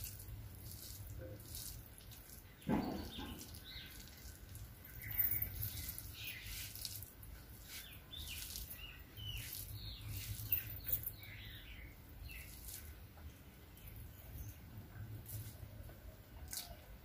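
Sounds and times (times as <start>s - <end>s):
fingers squishing rice: 0.0s - 11.1s.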